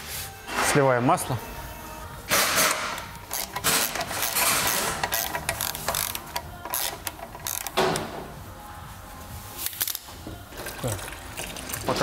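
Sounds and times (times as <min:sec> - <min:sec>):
ratchet wrench clicking: 0:02.6 - 0:07.8.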